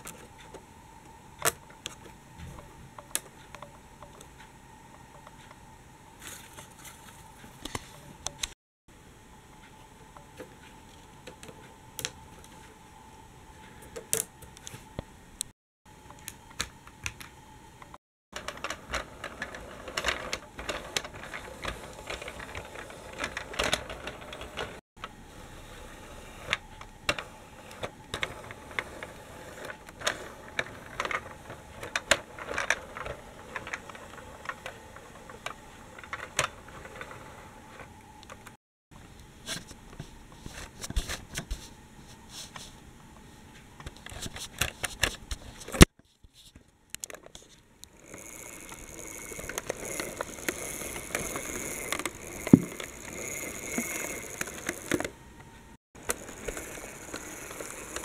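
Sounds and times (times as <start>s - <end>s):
toy tram rattling on wooden track: 18.4s - 24.8s, 27.8s - 37.9s, 48.0s - 55.1s, 56.0s - 58.0s.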